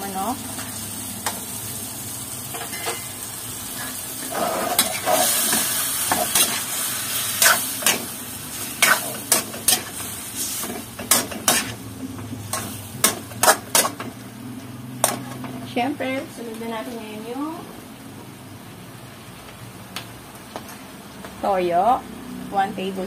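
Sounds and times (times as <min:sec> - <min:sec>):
chicken sizzling in a wok: 0:00.0 - 0:17.3
metal spatula scraping a wok: 0:02.6 - 0:11.8.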